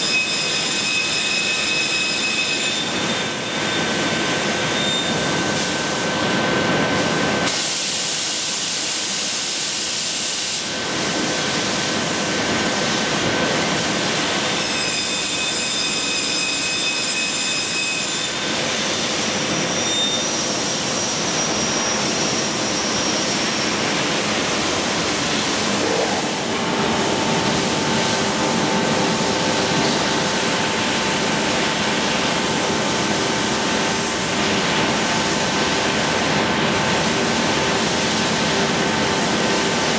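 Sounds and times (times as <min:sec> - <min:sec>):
saw whines: 0:00.0 - 0:06.2, 0:14.5 - 0:34.5.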